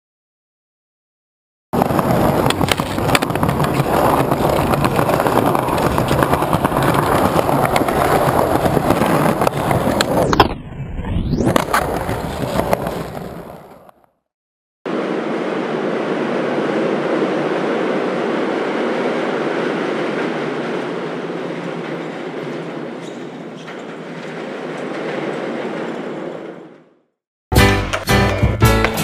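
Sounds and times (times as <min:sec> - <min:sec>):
skateboard wheel clicks: 0:01.8 - 0:10.4
skateboard rolling on concrete: 0:01.8 - 0:10.6, 0:11.3 - 0:14.1, 0:14.9 - 0:29.0.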